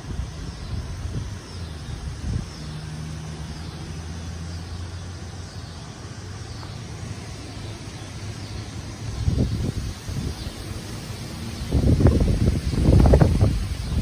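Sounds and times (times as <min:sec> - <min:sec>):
wind on microphone: 0:00.0 - 0:03.4, 0:09.0 - 0:14.0
vehicle engine hum: 0:00.0 - 0:14.0
wind blowing through trees: 0:00.0 - 0:14.0.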